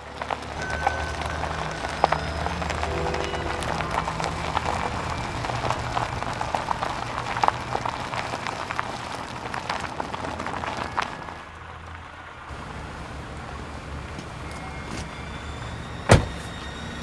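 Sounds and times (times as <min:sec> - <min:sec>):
crackling crunching with clicks: 0:00.0 - 0:12.1
car engine low hum: 0:00.0 - 0:17.0.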